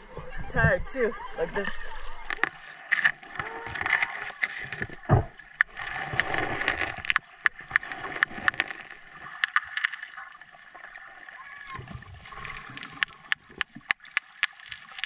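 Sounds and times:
underwater clicks and crackles: 0:00.1 - 0:15.0.

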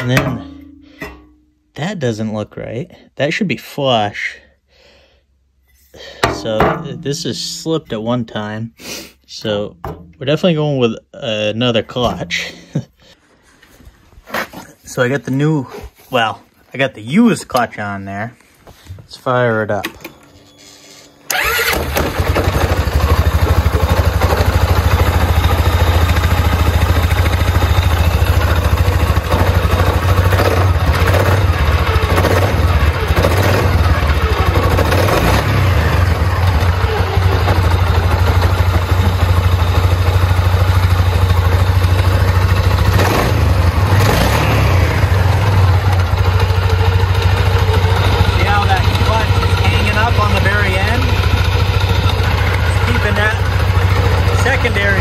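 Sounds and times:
engine starting and running: 0:19.8 - 0:55.0.

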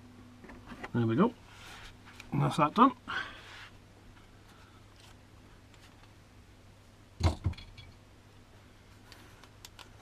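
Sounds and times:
small clicks of tools: 0:09.1 - 0:10.0.

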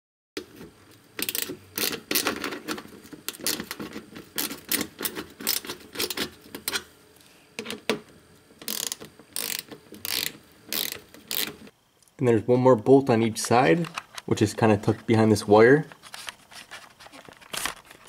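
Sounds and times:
ratchet wrench clicking: 0:01.2 - 0:02.3, 0:04.4 - 0:06.8, 0:08.6 - 0:11.7.

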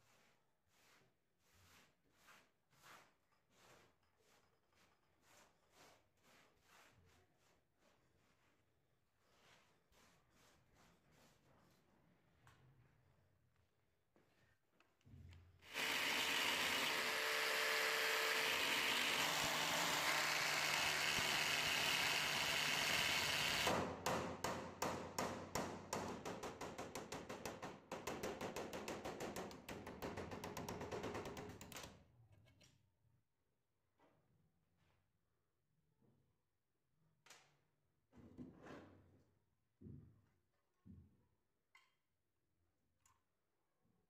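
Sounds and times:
electric drill boring metal: 0:15.7 - 0:23.7.

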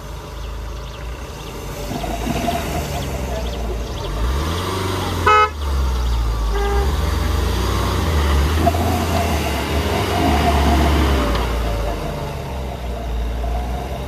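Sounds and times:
engine running hard under load: 0:00.0 - 0:14.0
car horn honk: 0:05.1 - 0:07.6.

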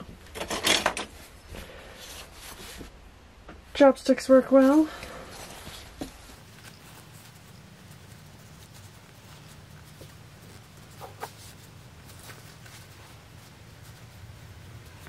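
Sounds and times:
low steady hum: 0:00.0 - 0:15.0
cotton fabric rustling: 0:01.2 - 0:03.0, 0:03.8 - 0:15.0.

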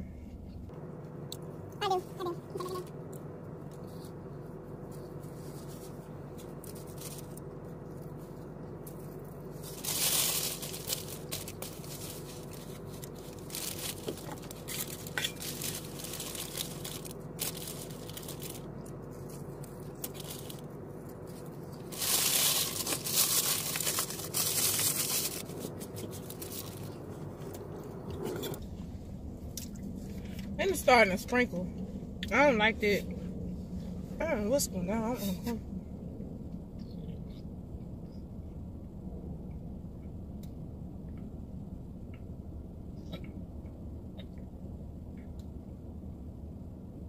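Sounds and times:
low hum inside a car: 0:00.0 - 0:47.0
crunchy eating: 0:03.0 - 0:28.6
paper rustling and crinkling: 0:03.8 - 0:28.0.

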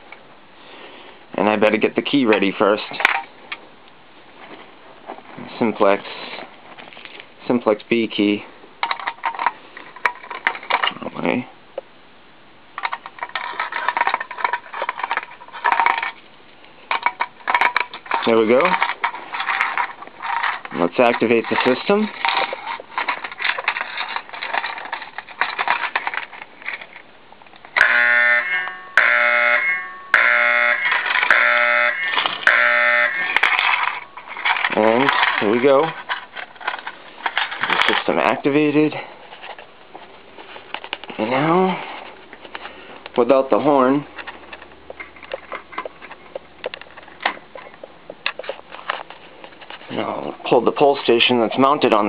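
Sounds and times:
fire alarm horn buzzing: 0:27.8 - 0:34.2.

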